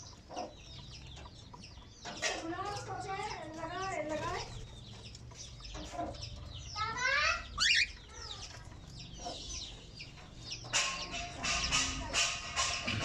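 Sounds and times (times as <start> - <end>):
small parrots chirping and chattering: 0.0 - 13.0
parrots squawking: 5.8 - 9.7.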